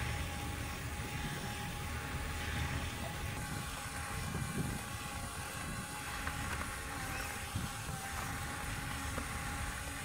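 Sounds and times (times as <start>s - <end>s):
faint thin whine: 0.0s - 10.0s
small electric motors running: 0.0s - 10.0s
wheel scraping sand: 0.0s - 10.0s.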